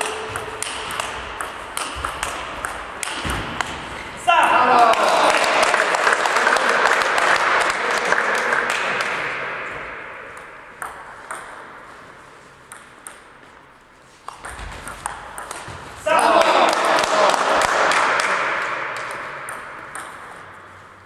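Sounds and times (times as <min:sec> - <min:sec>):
applause: 0:04.8 - 0:09.5, 0:16.3 - 0:19.2.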